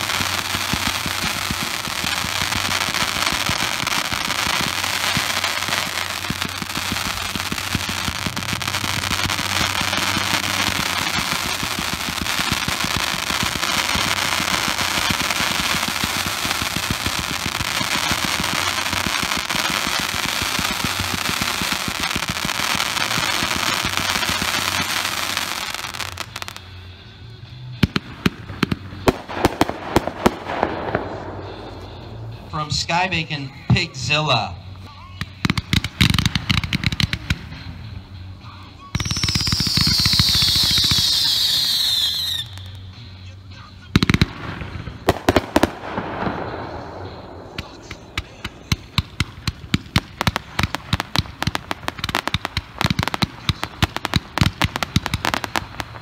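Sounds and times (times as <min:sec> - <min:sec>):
sharp firework bangs: 0:00.0 - 0:26.6, 0:27.8 - 0:33.0, 0:44.0 - 0:56.0
fireworks crackling barrage: 0:00.0 - 0:56.0.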